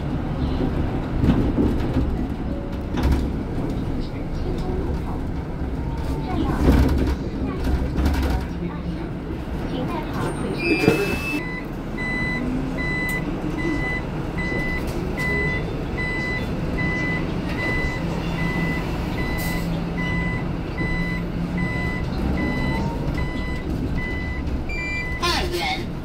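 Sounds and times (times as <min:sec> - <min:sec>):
bus engine and road noise: 0:00.0 - 0:26.0
electronic warning beeps: 0:10.6 - 0:25.2.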